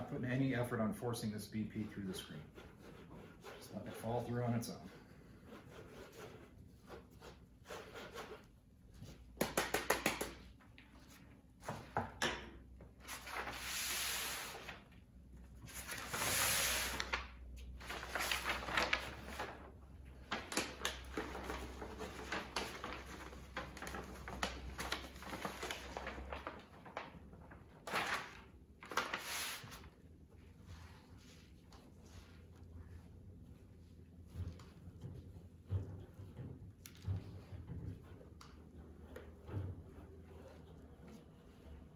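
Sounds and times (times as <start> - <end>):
paper rustling: 13.0 - 14.9, 15.6 - 30.0.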